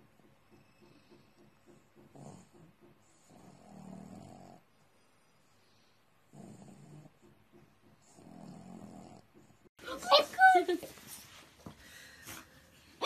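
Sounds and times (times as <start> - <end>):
dog snoring: 0.6 - 9.7.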